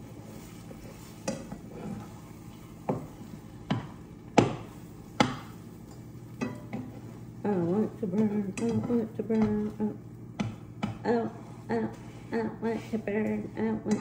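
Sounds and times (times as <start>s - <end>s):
utensil knocking on frying pan: 3.7s - 5.6s.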